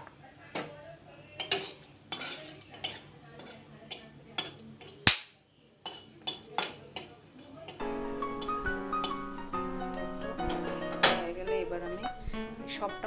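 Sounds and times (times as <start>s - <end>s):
spices frying in oil: 0.0s - 13.0s
metal spatula knocking on a pan: 7.7s - 9.3s, 10.4s - 12.0s.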